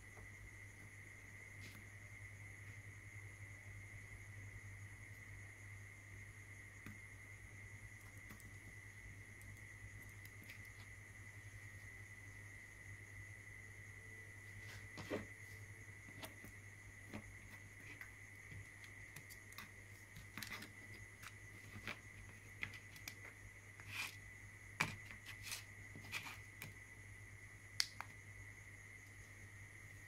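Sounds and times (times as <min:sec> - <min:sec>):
faint steady hum: 0:00.0 - 0:30.0
hands clicking and tapping electronics: 0:27.8 - 0:28.2.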